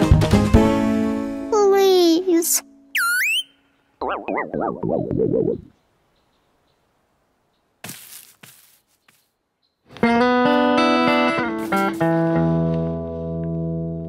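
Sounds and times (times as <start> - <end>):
cartoon bird chirping: 2.9 - 5.8
plucked guitar music: 9.9 - 14.0.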